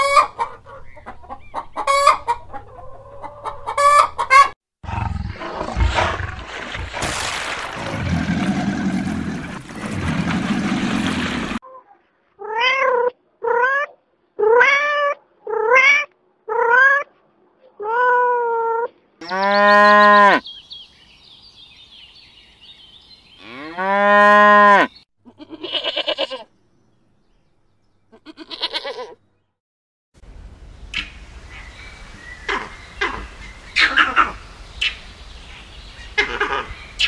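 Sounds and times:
cow mooing: 23.4s - 25.0s
young goat bleating: 25.3s - 26.5s, 28.1s - 29.2s.

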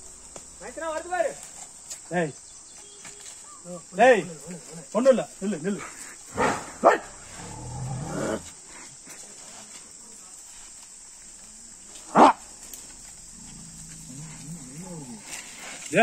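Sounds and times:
dog barking: 6.4s - 7.1s.

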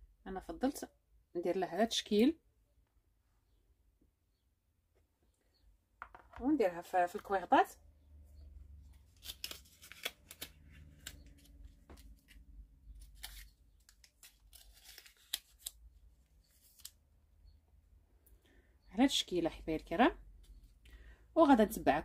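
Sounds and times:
paper cupcake cases crinkling: 9.0s - 17.0s.

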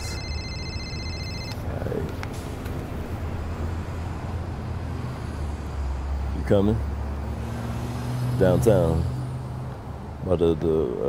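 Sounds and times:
electronic phone ringtone: 0.0s - 1.8s
street traffic hum: 0.0s - 11.0s.

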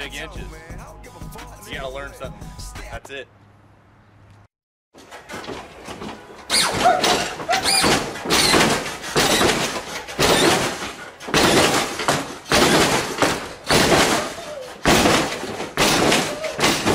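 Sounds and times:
car slamming on suspension: 5.0s - 16.9s.

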